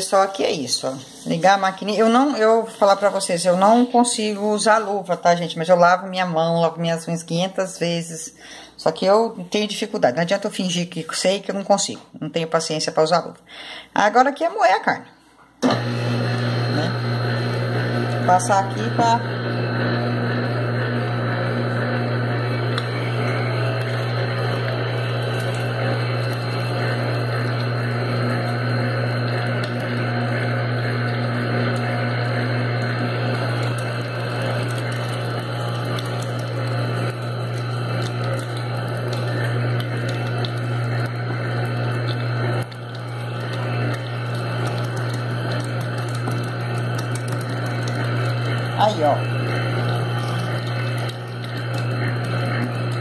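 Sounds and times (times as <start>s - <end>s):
electric meat grinder humming: 15.6s - 53.0s.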